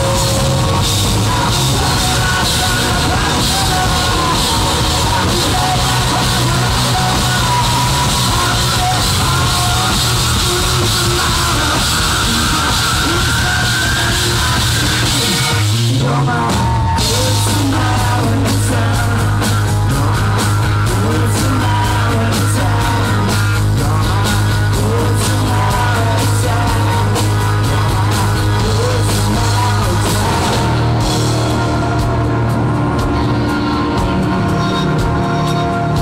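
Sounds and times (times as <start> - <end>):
live rock band playing: 0.0 - 36.0
lead guitar line bending in pitch: 29.3 - 36.0.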